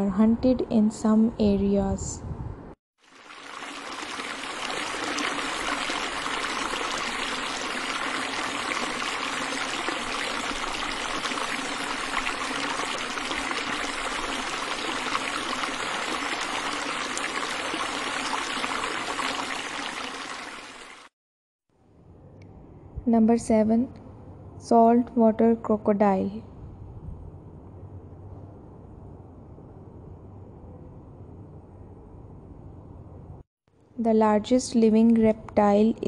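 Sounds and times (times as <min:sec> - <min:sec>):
rush of flowing water: 0:03.0 - 0:21.1.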